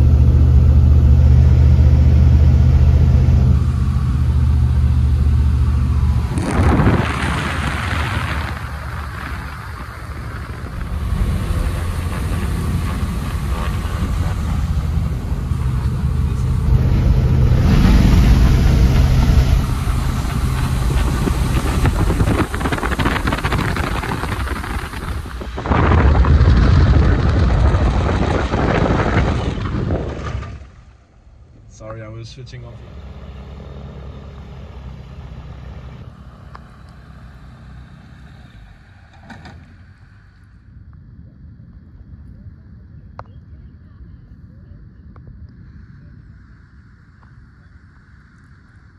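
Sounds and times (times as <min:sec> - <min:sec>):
plane engine and propeller droning: 0:00.0 - 0:48.9
water spray hissing: 0:17.6 - 0:25.7.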